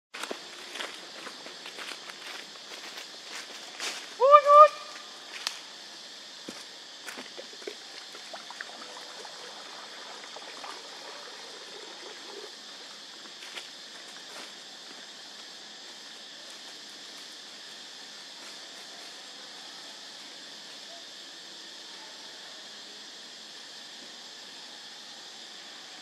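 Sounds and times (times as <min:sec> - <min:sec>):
steady high hiss: 0:00.2 - 0:26.0
water pouring and splashing: 0:07.4 - 0:13.4.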